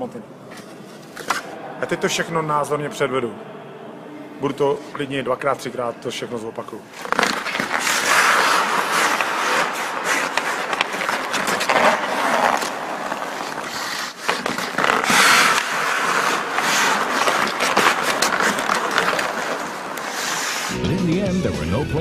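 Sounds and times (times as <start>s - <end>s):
hockey skates scraping ice: 0.4s - 2.3s, 6.8s - 20.8s.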